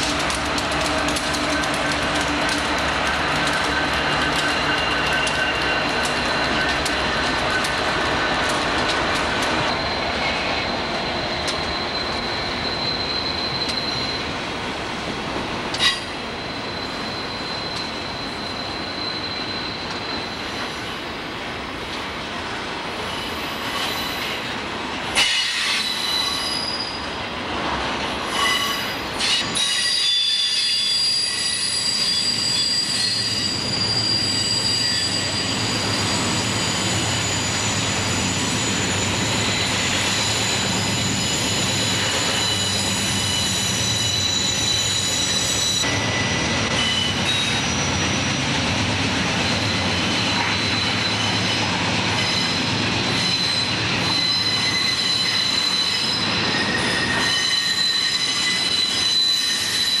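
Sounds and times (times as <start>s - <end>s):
train wheels rumbling on rails: 0.0s - 60.0s
high-pitched wheel squealing: 3.4s - 8.6s, 9.2s - 14.3s, 25.2s - 27.1s, 28.4s - 48.4s, 49.4s - 60.0s.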